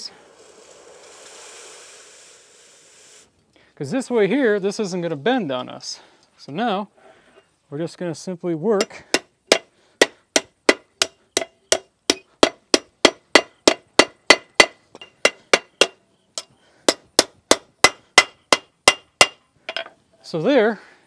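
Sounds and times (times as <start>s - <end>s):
hammer striking steel bar: 8.8s - 16.0s, 16.9s - 19.8s.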